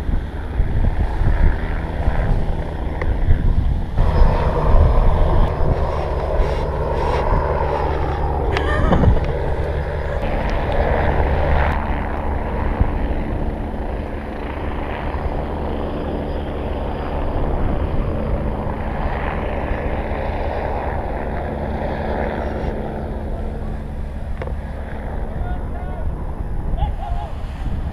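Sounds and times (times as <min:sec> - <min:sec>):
low engine drone: 0:00.0 - 0:27.9
dense rushing noise: 0:03.3 - 0:10.7.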